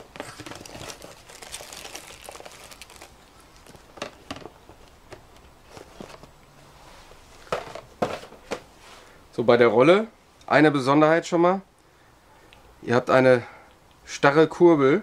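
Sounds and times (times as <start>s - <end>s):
cardboard and plastic crinkling: 0.0s - 6.3s.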